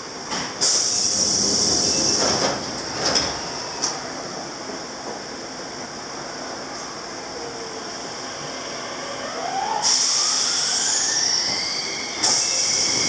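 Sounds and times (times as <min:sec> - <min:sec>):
high hiss: 0:00.6 - 0:02.2, 0:09.8 - 0:13.0.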